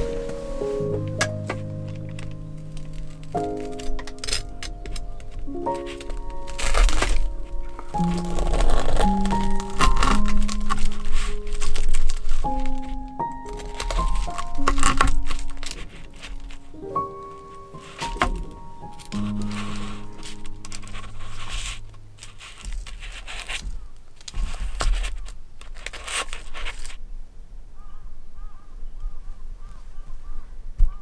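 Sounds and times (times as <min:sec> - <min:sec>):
background music: 0:00.0 - 0:23.6
parchment paper rustling: 0:00.0 - 0:27.0
knife crunching through toasted crust: 0:02.8 - 0:16.7
bird calling: 0:27.8 - 0:31.0.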